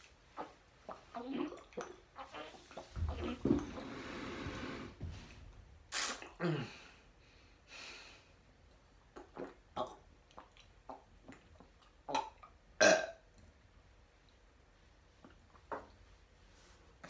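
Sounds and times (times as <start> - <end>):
mouth and swallowing clicks: 9.1 - 12.5
groan-like burp: 12.1 - 13.2.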